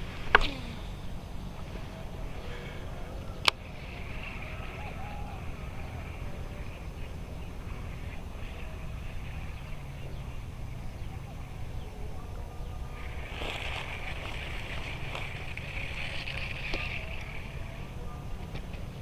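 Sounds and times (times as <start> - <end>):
wind rumble on microphone: 0.0 - 19.0.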